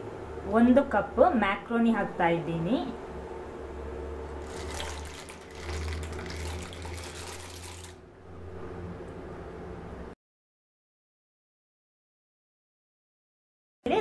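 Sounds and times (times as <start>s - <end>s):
water boiling in pan: 4.3s - 8.0s
dry pasta pouring into water: 4.4s - 8.0s.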